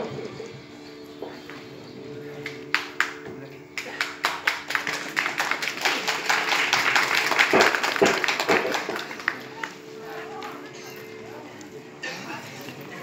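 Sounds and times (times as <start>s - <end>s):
fast rhythmic percussion: 2.8s - 9.3s.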